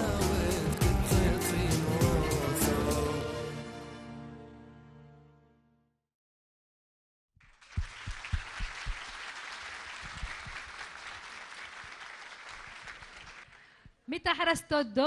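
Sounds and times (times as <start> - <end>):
audience applauding: 7.4 - 13.8
close loud claps: 7.4 - 13.9.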